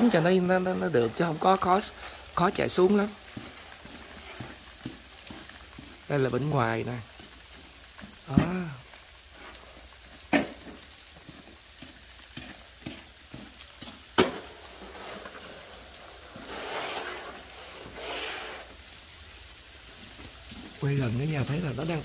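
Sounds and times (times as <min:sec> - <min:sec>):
snow shovel scraping ice: 0:00.0 - 0:03.1, 0:14.2 - 0:18.8
sleet pattering: 0:00.0 - 0:22.0.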